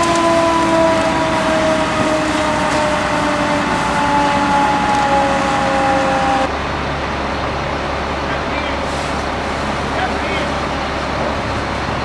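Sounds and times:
fire hose rushing hiss: 8.4 - 11.7.

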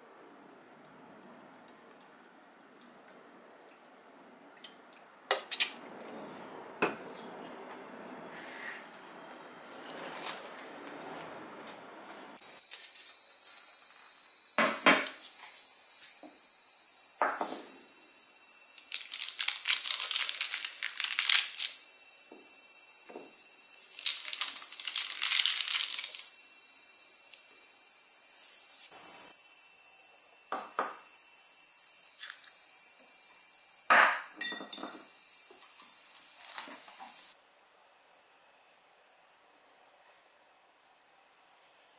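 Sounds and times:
insects chirping: 12.4 - 41.9
baking paper rustling: 18.9 - 21.8, 24.0 - 26.3
plate and glass clinking on table: 33.9 - 35.0.

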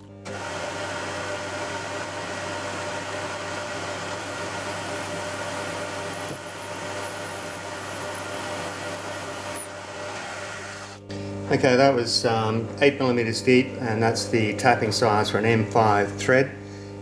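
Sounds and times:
milling machine drilling metal: 0.3 - 11.0.

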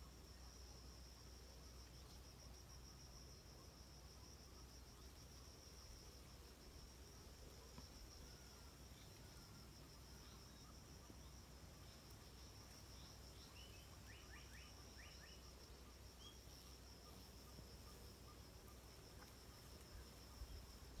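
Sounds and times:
insect trill: 0.0 - 21.0.

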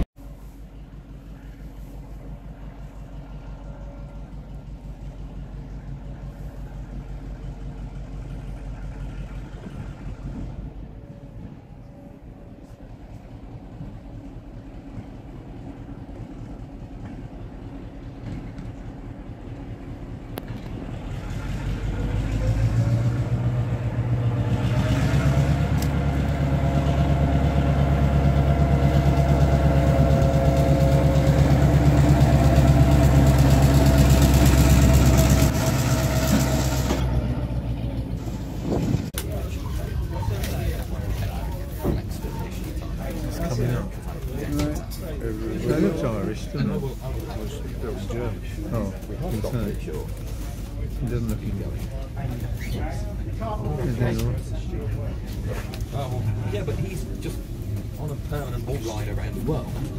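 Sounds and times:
diesel locomotive engine: 0.0 - 59.9
engine whine rising in pitch: 19.0 - 48.0.

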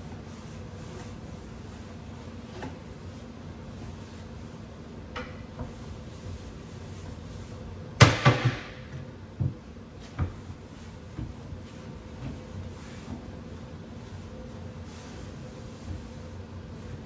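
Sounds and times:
wooden cabinet door banging shut: 8.0 - 8.8.

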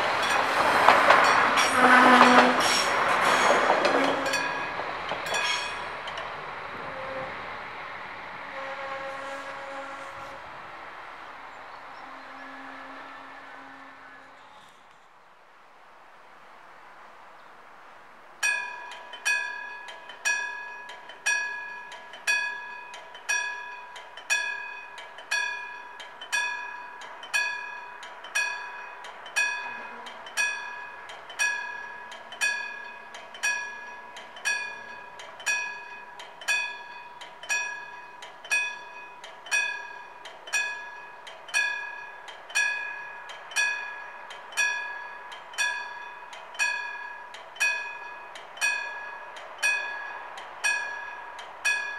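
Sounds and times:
crossing warning bell striking: 0.0 - 7.0, 18.4 - 51.9.

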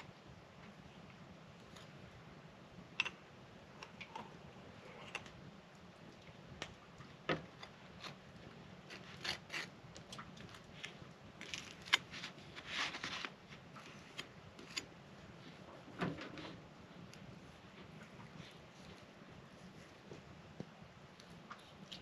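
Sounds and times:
knife scraping bread: 8.8 - 9.8.

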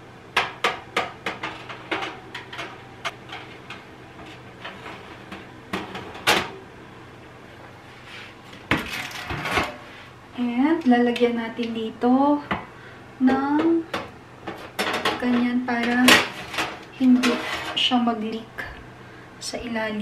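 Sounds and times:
steady low hum: 0.0 - 20.0
metal oven rack clattering: 0.4 - 6.6, 13.9 - 18.0.

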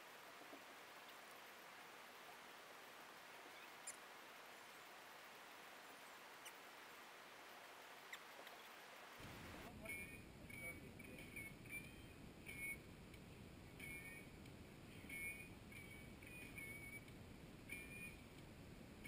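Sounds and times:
faint outdoor hiss: 0.0 - 19.0
faint high ticks: 12.5 - 18.5.

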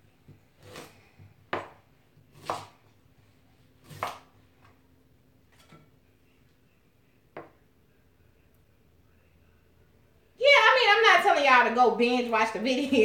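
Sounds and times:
knife knocking on cutting board: 1.5 - 1.8.

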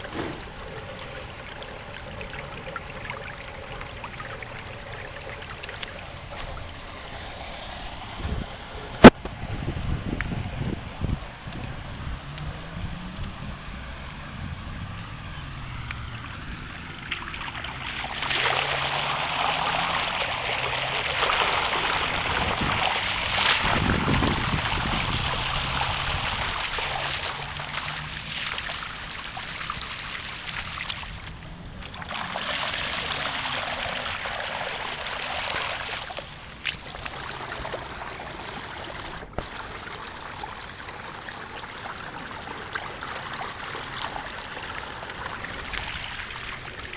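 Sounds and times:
rainwater rushing down gutter: 0.0 - 46.9.

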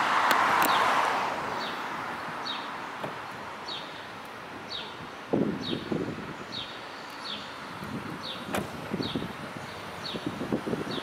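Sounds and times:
car passing: 0.0 - 11.0
bird chirping: 1.5 - 10.3.

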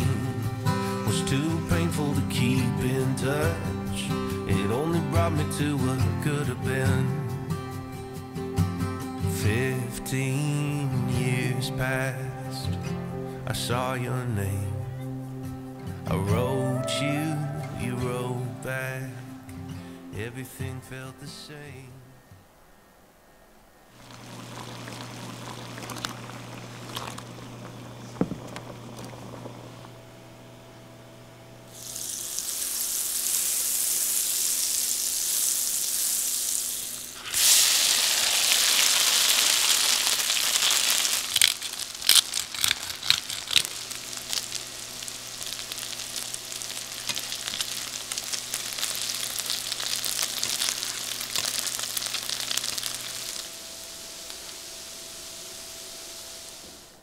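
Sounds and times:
gnocchi sizzling in oil: 24.0 - 29.8, 31.7 - 57.0.

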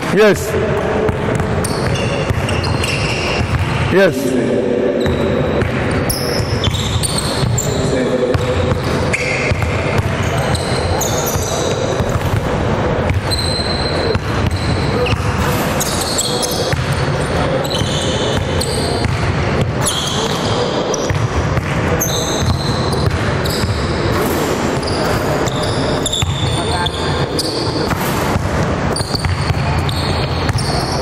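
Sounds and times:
echoing voices: 0.0 - 28.9
sneakers squeaking: 0.0 - 31.0
basketballs bouncing on hardwood: 0.7 - 3.9, 5.0 - 20.4, 28.3 - 31.0.

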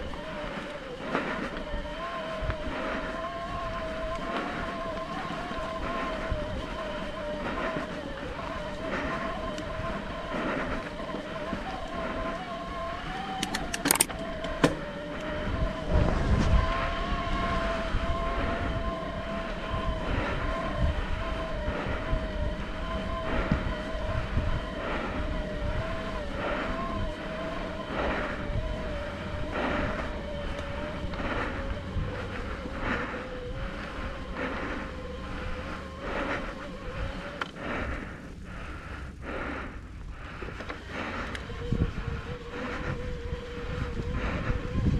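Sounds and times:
bike clacking over rough ground: 0.0 - 44.9
electric bike motor whining: 0.0 - 44.9
rumble of tyres and wind: 0.0 - 44.9.

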